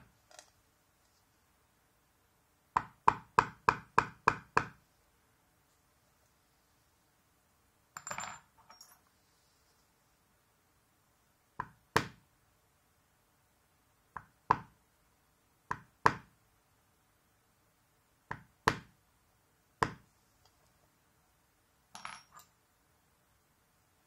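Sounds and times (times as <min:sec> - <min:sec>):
light clicks and clinks: 0:08.0 - 0:09.1.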